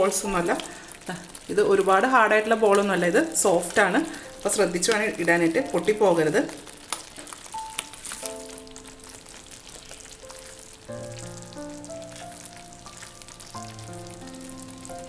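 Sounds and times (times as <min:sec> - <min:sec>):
gravy sizzling in a pan: 0:00.0 - 0:15.0
soft background music: 0:00.0 - 0:15.0.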